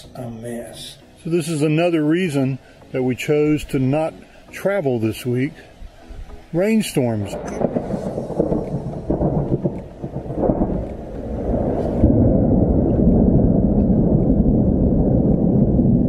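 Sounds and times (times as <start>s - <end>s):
thunder rumble: 7.1s - 16.0s.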